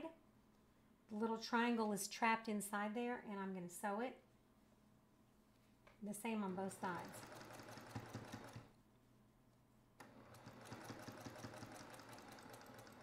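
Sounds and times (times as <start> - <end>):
sewing machine stitching: 6.4 - 8.8, 10.0 - 13.0.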